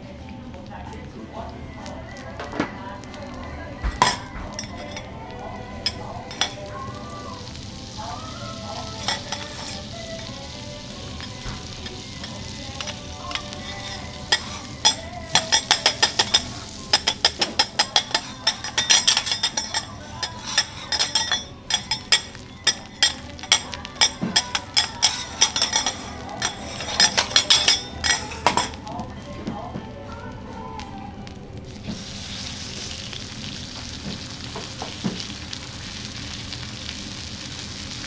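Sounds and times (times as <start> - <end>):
butter sizzling on a griddle: 0.6 - 38.0
metal spatula tapping griddle: 5.8 - 6.6, 9.0 - 9.8, 11.2 - 28.8.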